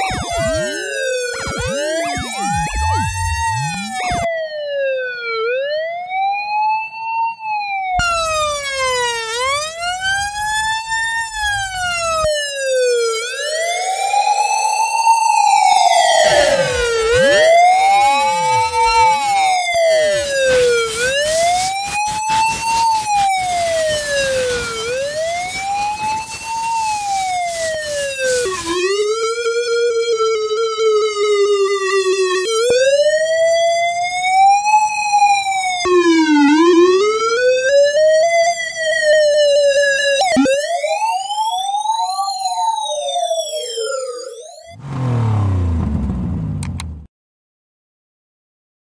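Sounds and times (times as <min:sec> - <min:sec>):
ambulance siren wailing: 0:00.0 - 0:46.9.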